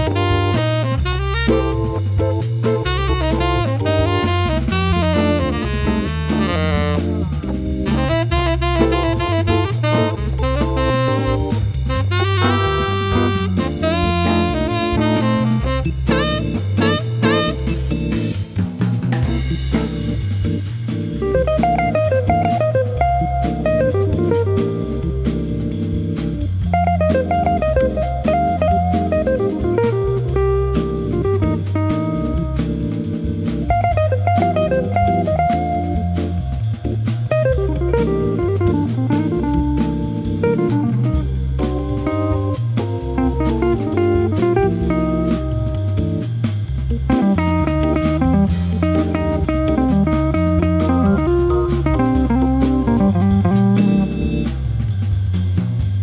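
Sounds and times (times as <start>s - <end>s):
drum kit with cymbals: 0.0s - 56.0s
organ bass line: 0.0s - 56.0s.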